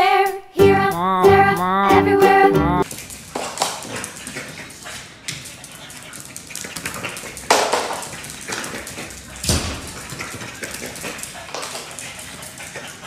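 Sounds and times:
dog claws clicking on tiles: 0:02.8 - 0:13.0
dog sound: 0:02.8 - 0:13.0.

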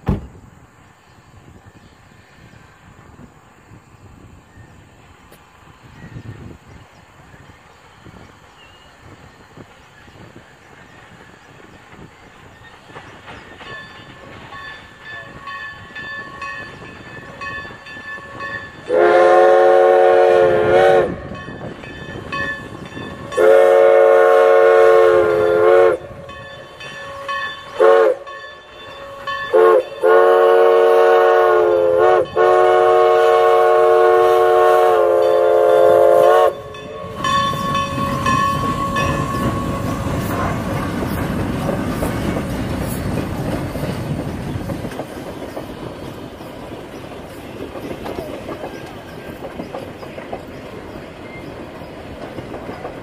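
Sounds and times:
train rumbling past: 0:00.0 - 0:53.0
steam locomotive whistle blasts: 0:14.8 - 0:41.1.

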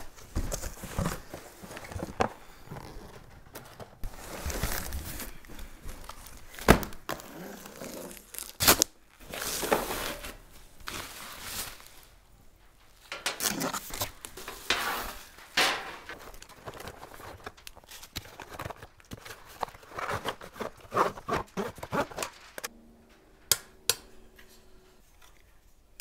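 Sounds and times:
cardboard boxes rustling and scraping: 0:00.0 - 0:08.5, 0:09.2 - 0:12.2, 0:13.4 - 0:22.7.

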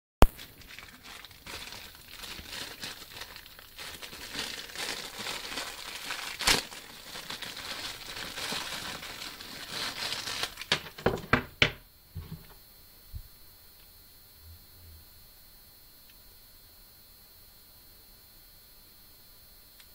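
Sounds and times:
plastic bag crinkling: 0:00.2 - 0:11.6.

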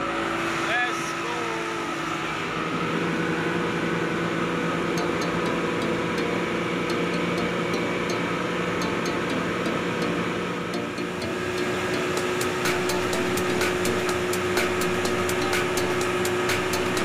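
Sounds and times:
outboard motors running: 0:00.0 - 0:17.0.

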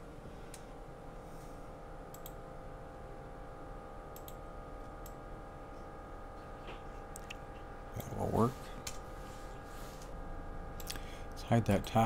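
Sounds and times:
steady low hum: 0:00.0 - 0:12.0
computer mouse clicking: 0:02.1 - 0:02.4, 0:04.1 - 0:04.4.

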